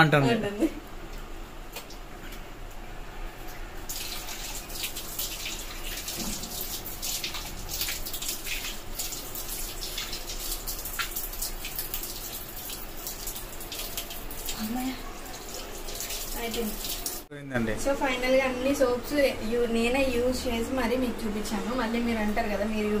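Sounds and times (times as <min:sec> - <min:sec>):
water running from a tap: 0:03.8 - 0:17.3
water splashing on face: 0:03.8 - 0:17.3.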